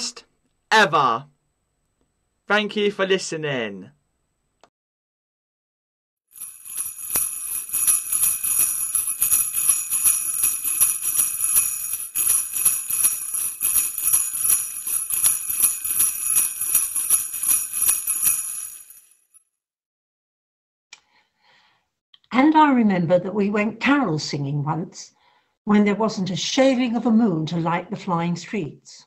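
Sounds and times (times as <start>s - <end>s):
jingle bells shaken: 6.3s - 19.4s.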